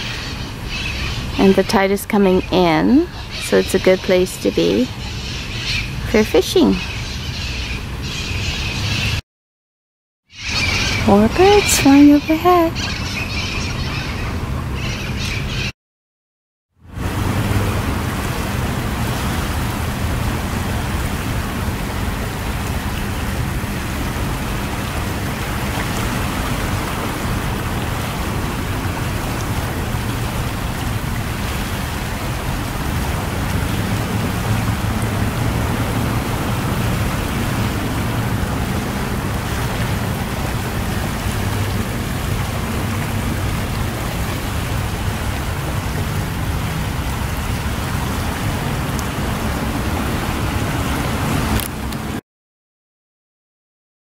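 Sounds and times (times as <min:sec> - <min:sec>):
seawater rushing through channel: 0:16.8 - 0:52.2.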